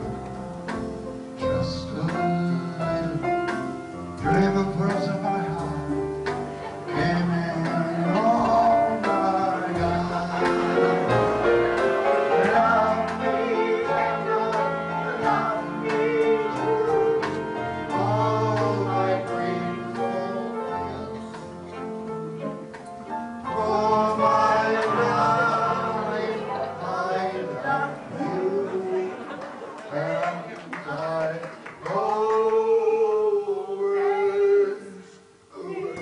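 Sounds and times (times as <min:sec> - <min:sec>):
instrumental accompaniment: 0:00.0 - 0:30.5
man singing: 0:01.4 - 0:06.2, 0:06.8 - 0:11.2, 0:12.3 - 0:22.7, 0:23.5 - 0:29.3, 0:29.9 - 0:36.0.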